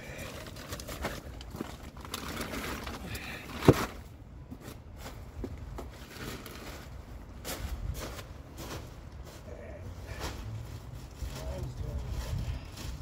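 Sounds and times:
wind rumbling on microphone: 11.2 - 13.0.

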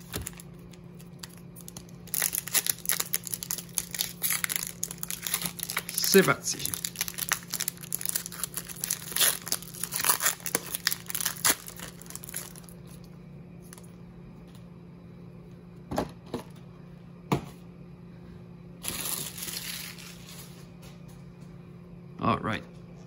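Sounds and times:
foil wrapper tearing and crinkling: 0.0 - 12.8, 18.8 - 20.5.

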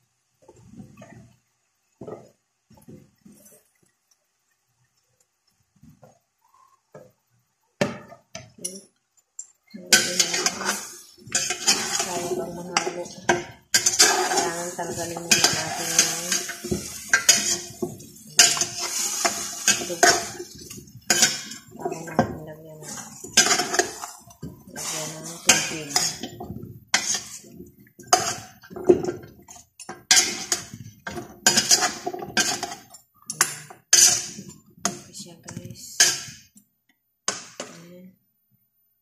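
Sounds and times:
metal spoon scraping steel pot: 9.8 - 13.1, 13.7 - 27.5, 28.1 - 34.5.

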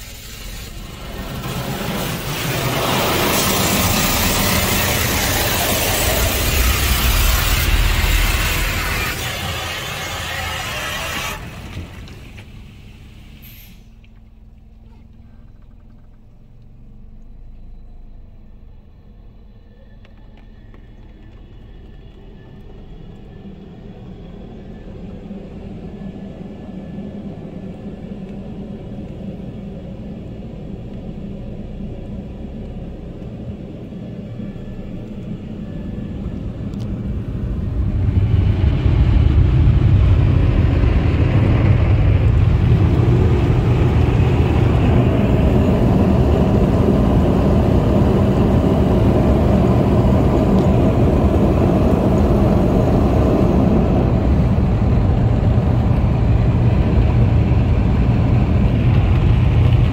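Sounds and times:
electric blower dryers rushing air: 0.3 - 12.7, 36.4 - 59.9.

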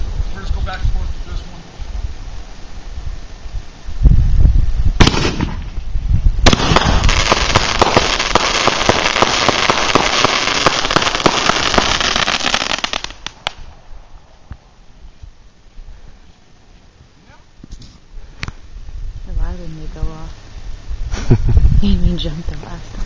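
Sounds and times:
dense rapid firework crackling: 5.0 - 13.8
firework bangs: 5.0 - 13.8.

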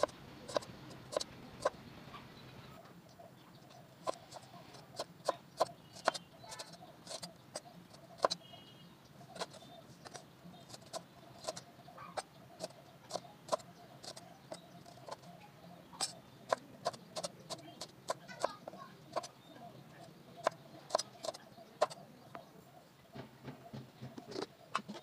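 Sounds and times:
knife chopping on wooden board: 4.0 - 7.3, 8.2 - 8.4, 20.4 - 22.0.

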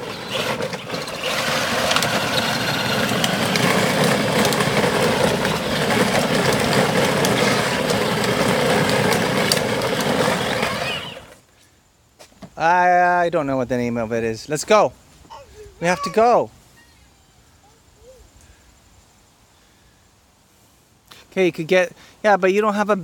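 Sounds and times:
electric motor whine: 0.0 - 11.4
plastic wheels rumbling on pavement: 0.0 - 11.4, 15.6 - 16.9.

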